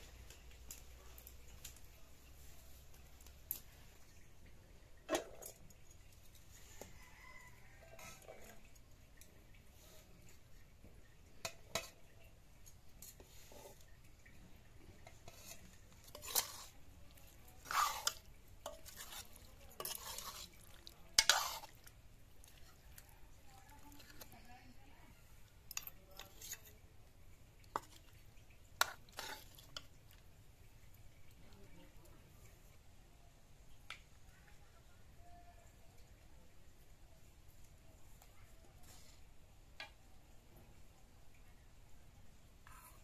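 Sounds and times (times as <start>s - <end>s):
metal spoons clinking on bowls: 15.0s - 21.8s.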